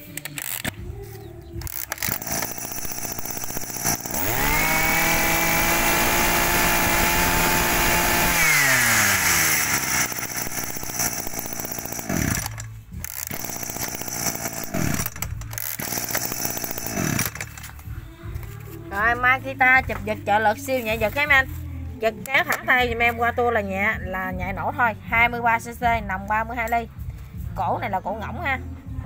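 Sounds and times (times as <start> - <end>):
brush cutter engine revving: 0.2 - 0.8, 1.6 - 17.8.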